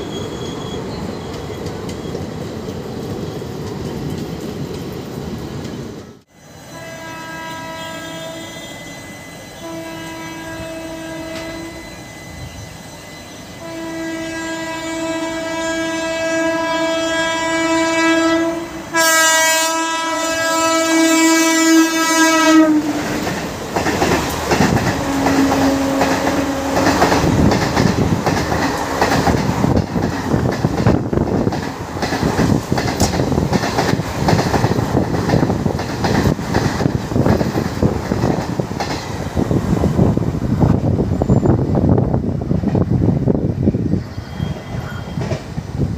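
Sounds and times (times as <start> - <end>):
train passing at speed: 0.0 - 45.9
locomotive horn blasts: 6.7 - 12.5, 13.5 - 23.0, 25.0 - 27.1
wheels clacking over rail joints: 23.0 - 39.4.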